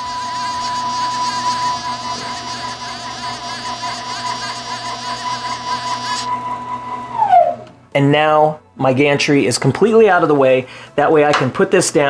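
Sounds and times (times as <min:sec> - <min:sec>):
stepper motors whining: 0:00.0 - 0:07.8.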